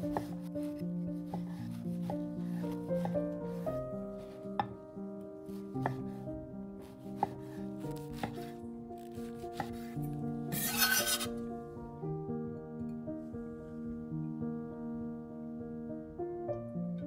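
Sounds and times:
knife cutting bread: 6.9s - 11.4s
knife knocking on cutting board: 8.2s - 8.5s
blade scraping across board: 10.5s - 11.4s.

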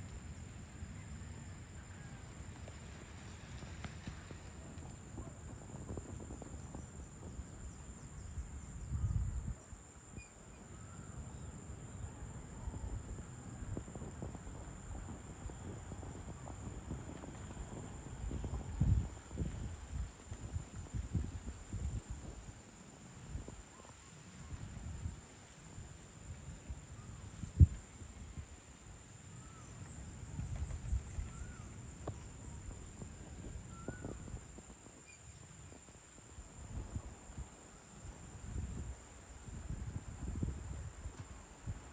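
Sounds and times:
crickets droning: 0.0s - 41.9s
faint chirps: 10.0s - 12.9s, 31.1s - 34.4s.

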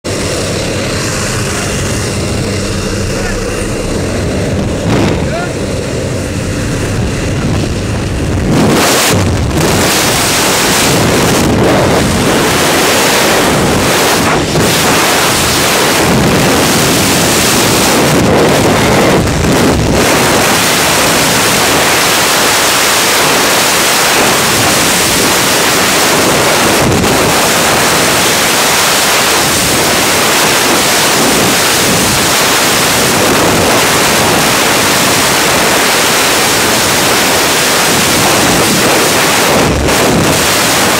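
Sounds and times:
freefall wind rushing: 0.0s - 40.9s
plane cabin drone: 0.0s - 40.9s.

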